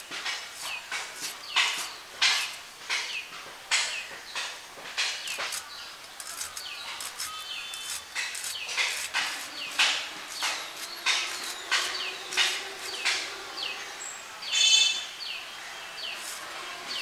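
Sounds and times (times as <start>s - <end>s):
birds chirping faintly: 0.0s - 17.0s
blade slicing vegetable: 5.1s - 13.4s, 16.1s - 17.0s.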